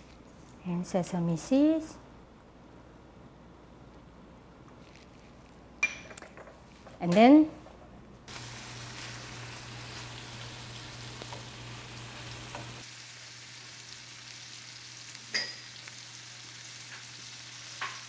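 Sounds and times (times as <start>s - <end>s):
meat sizzling in a skillet: 8.3s - 18.0s.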